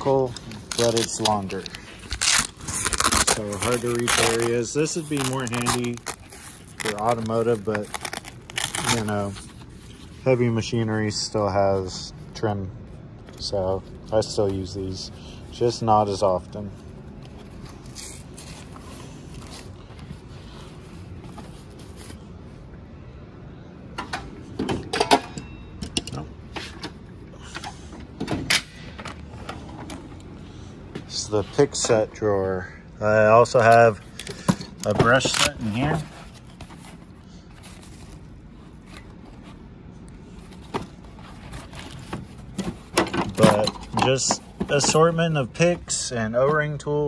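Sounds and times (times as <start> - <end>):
low steady hum: 0.0 - 47.0
fabric pouch handling: 0.4 - 10.2.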